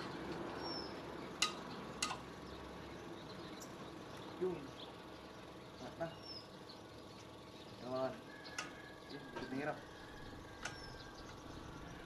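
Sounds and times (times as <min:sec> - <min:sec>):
metal tool tapping on metal: 0:01.4 - 0:02.2.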